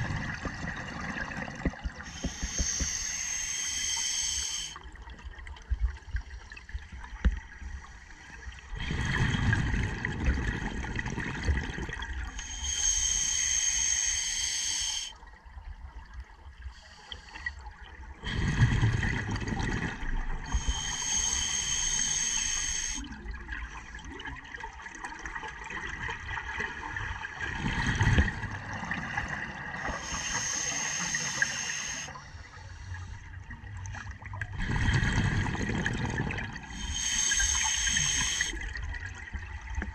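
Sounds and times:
exhaust bubbles bubbling: 0.0 - 2.5, 34.1 - 36.7
regulator inhale hissing: 2.0 - 4.9, 12.4 - 15.2, 20.5 - 23.1, 29.8 - 33.2, 36.7 - 38.6.

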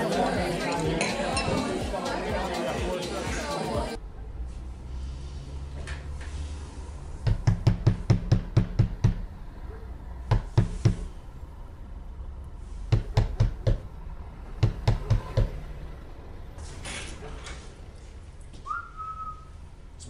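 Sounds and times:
knocking hard on a door: 7.3 - 9.2, 10.3 - 11.1, 12.9 - 13.8, 14.6 - 15.6.

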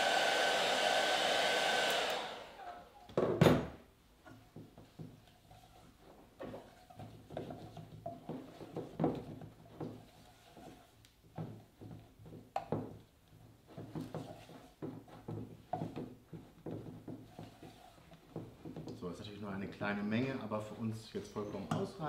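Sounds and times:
metal spoon scraping pot: 5.2 - 8.8.

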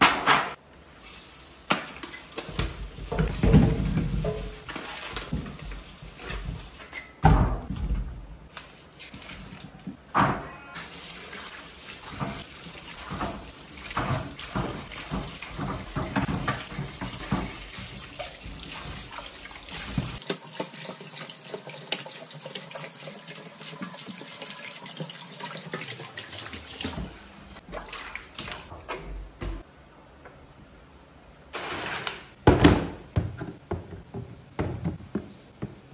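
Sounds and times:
water splashing: 10.8 - 28.7.

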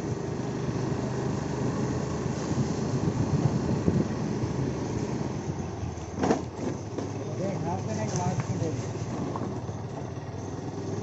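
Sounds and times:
vehicle engine running: 0.0 - 11.0
wind noise on microphone: 2.3 - 5.8.

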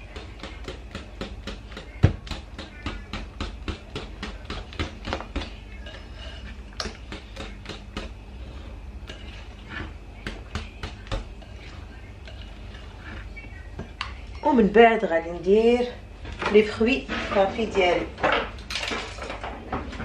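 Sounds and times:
whisk clicking against bowl: 0.0 - 8.2.

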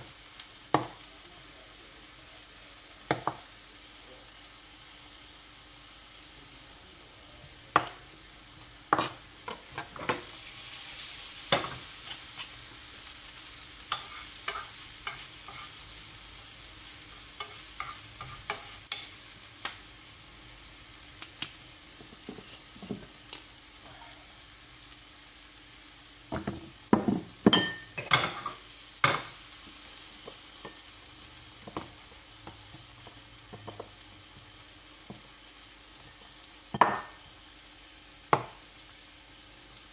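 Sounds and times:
meat sizzling in a frying pan: 0.0 - 39.9
metal spoon scraping a pan: 11.5 - 12.6, 13.9 - 15.8, 17.3 - 19.8.

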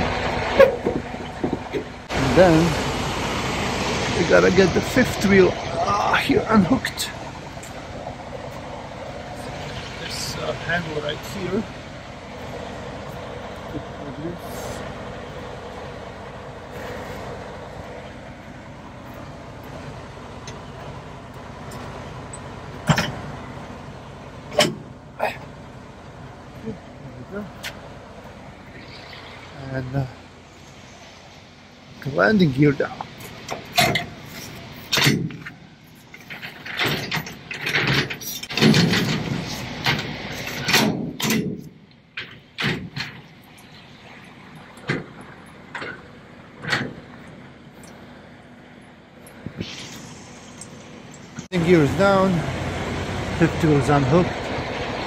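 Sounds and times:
crank metallic grinding and clunking: 0.0 - 55.0
diesel truck engine idling: 0.0 - 55.0
brief rush of noise: 49.5 - 51.0.

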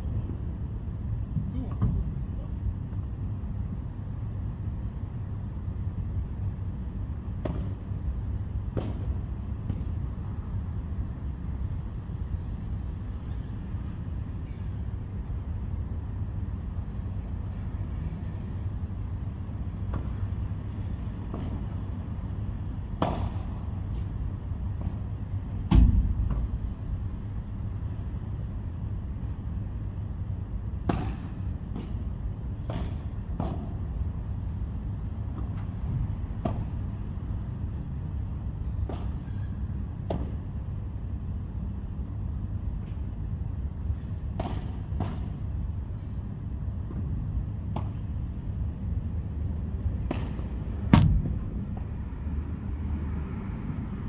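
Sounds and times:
ball struck by rackets: 7.4 - 7.8, 8.7 - 9.1, 23.0 - 23.5, 25.7 - 26.5, 30.8 - 32.0, 32.6 - 33.7, 44.4 - 45.4, 50.0 - 51.9
loud thud: 25.7 - 26.7, 30.8 - 32.0, 50.0 - 51.6.

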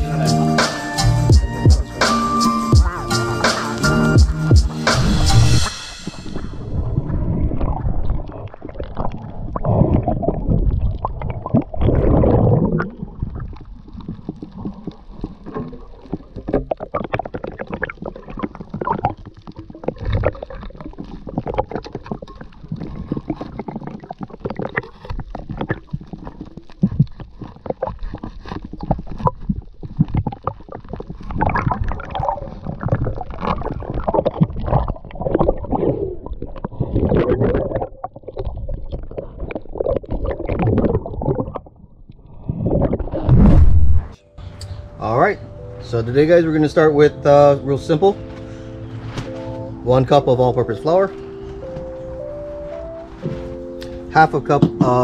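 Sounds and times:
underwater rushing and gurgling: 2.2 - 44.5
sharp clicks and crackles: 12.8 - 42.2.

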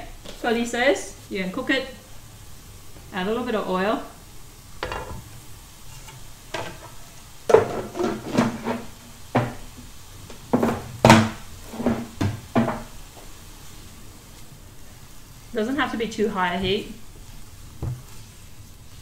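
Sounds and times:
faint frying sizzle: 0.0 - 19.0
cookware and utensils clattering: 4.8 - 5.3, 5.9 - 9.6, 10.5 - 12.9.

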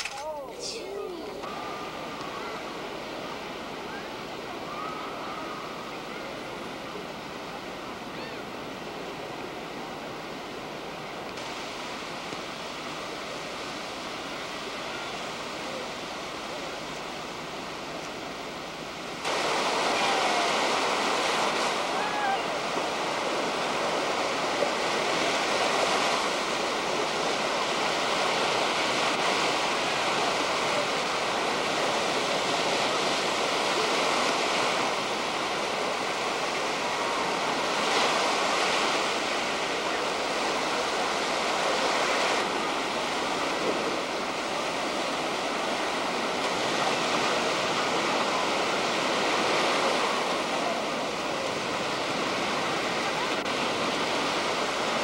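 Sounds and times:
waves breaking on a beach: 0.0 - 55.0.

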